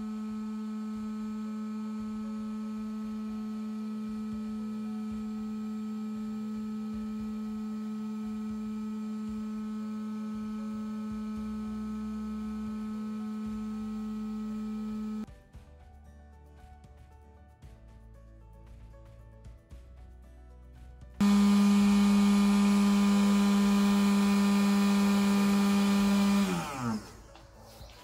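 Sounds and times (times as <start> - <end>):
heat gun fan hum: 0.0 - 15.3, 21.2 - 27.4.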